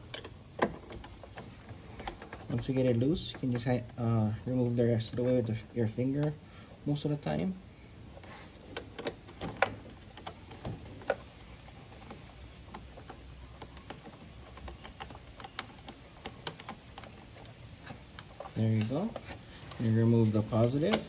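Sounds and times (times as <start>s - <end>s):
small metallic clicks and taps: 8.7s - 19.9s.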